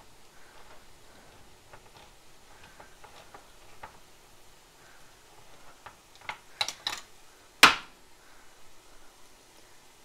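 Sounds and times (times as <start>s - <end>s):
can opener clicking and scraping: 0.5s - 4.1s, 5.4s - 7.1s.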